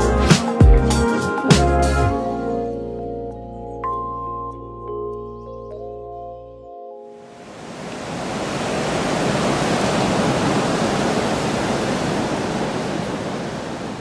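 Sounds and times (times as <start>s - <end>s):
ocean waves breaking: 7.2s - 14.0s.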